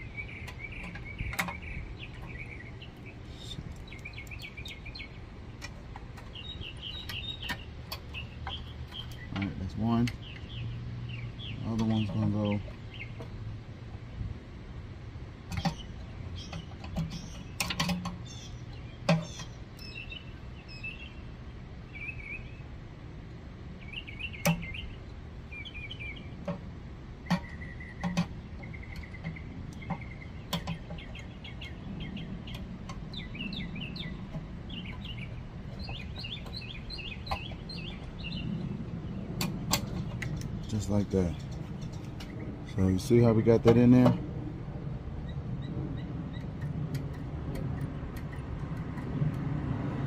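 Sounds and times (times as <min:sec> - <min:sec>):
birds chirping: 0:00.0 - 0:50.0
pliers and spring clicking: 0:15.5 - 0:18.3, 0:46.3 - 0:49.6.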